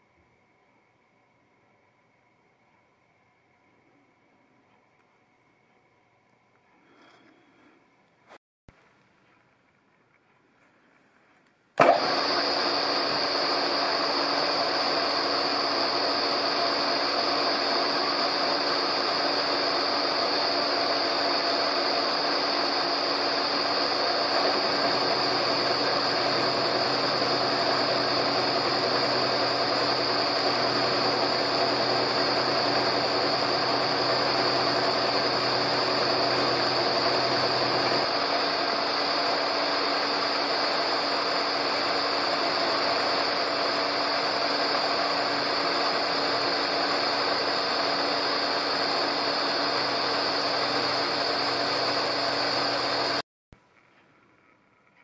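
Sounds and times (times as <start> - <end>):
milling machine cutting steel: 11.8 - 53.2
high-pitched whine: 12.8 - 53.2.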